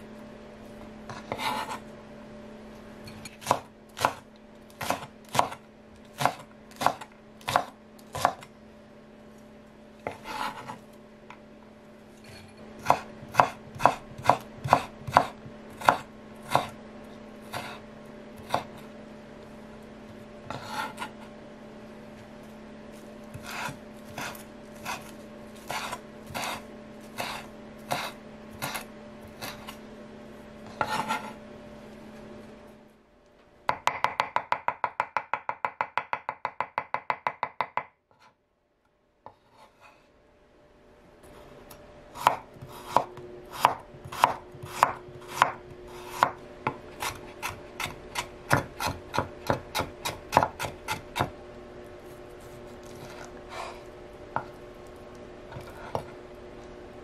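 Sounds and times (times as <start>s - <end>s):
knife scraping board: 1.1s - 1.9s, 10.0s - 10.8s, 12.2s - 16.8s, 17.5s - 18.9s, 20.4s - 21.4s, 23.3s - 29.8s, 30.6s - 31.4s, 39.2s - 40.1s, 42.2s - 51.3s, 52.0s - 54.5s, 55.5s - 56.2s
knife chopping on wooden board: 3.4s - 4.2s, 4.8s - 5.6s, 6.2s - 8.5s, 12.8s - 16.8s, 18.4s - 18.8s, 23.4s - 26.6s, 27.2s - 29.8s, 30.8s - 31.3s, 33.7s - 38.0s, 42.2s - 51.4s.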